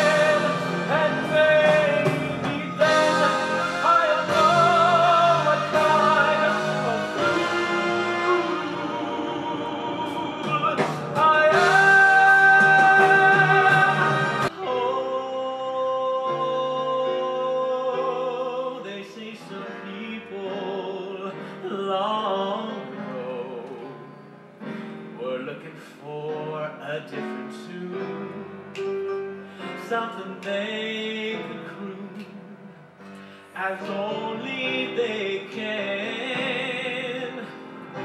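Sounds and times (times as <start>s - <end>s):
instrumental accompaniment: 0.0s - 18.6s
man singing: 0.0s - 38.0s.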